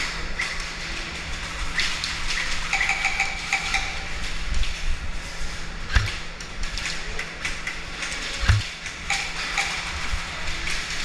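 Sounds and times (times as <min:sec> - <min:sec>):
steady low hum: 0:00.0 - 0:11.0
sharp clicks and knocks: 0:05.9 - 0:10.0.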